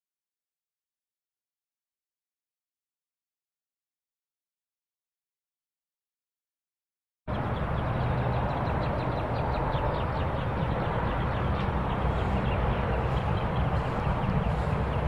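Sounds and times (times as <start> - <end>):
bird chirping: 7.3 - 15.0
low rumble: 7.5 - 15.0.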